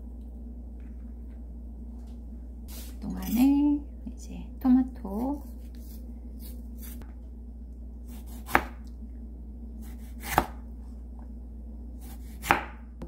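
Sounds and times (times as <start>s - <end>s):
faint steady hum: 0.0s - 13.0s
knife slicing tomato onto board: 8.1s - 8.8s, 9.8s - 10.6s, 12.0s - 12.8s.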